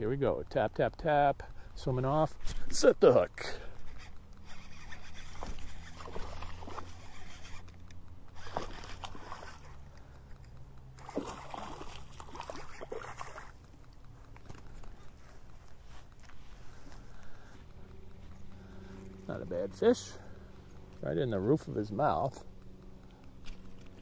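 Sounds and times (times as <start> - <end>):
fish splashing at water surface: 8.4 - 9.8, 10.8 - 13.7.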